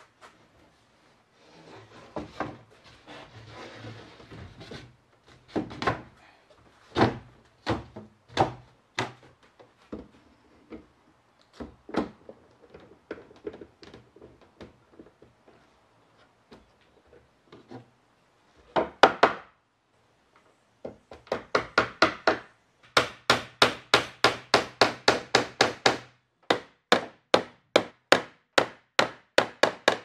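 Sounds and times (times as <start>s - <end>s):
board sliding scrape: 1.4s - 4.8s
wooden knocks and thunks: 2.1s - 2.7s, 5.4s - 6.2s, 6.9s - 10.9s, 11.6s - 15.4s, 18.7s - 19.5s.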